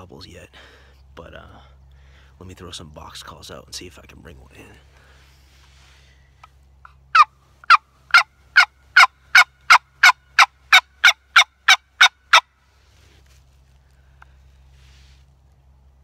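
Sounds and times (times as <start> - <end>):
turkey box call yelping: 7.1 - 12.5.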